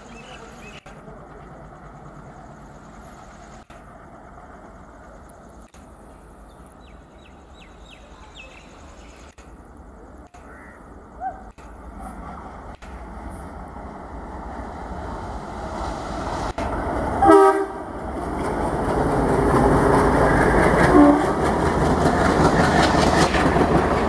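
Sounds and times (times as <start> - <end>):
birds calling: 0.0 - 1.0, 6.0 - 9.4
diesel locomotive engine rumble: 0.0 - 24.0.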